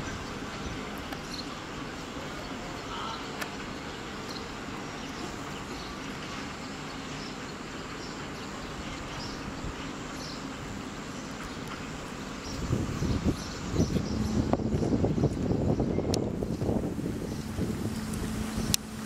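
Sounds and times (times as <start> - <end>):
wind rumbling on microphone: 0.0 - 6.3, 8.6 - 19.0
outdoor background noise: 0.0 - 19.0.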